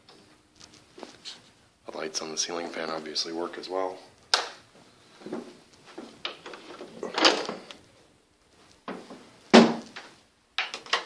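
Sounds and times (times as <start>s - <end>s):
door clattering: 6.3s - 7.7s.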